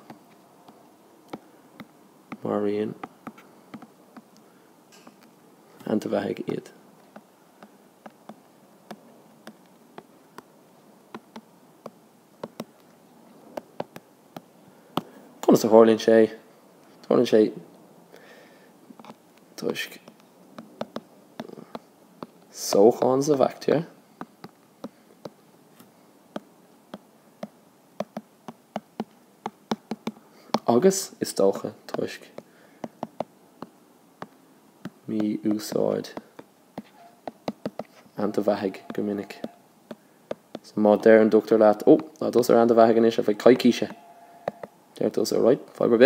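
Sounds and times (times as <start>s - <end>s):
faint steady hiss: 0.0s - 46.0s
stylus tapping on glass screen: 20.8s - 21.8s, 36.2s - 37.9s, 38.8s - 40.6s, 43.8s - 44.8s.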